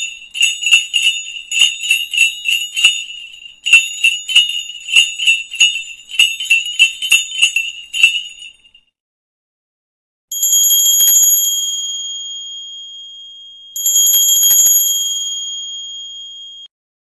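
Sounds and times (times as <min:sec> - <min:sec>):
bright bell tone ringing: 0:00.0 - 0:08.8, 0:10.3 - 0:16.7
jingle bells shaking: 0:00.0 - 0:08.9.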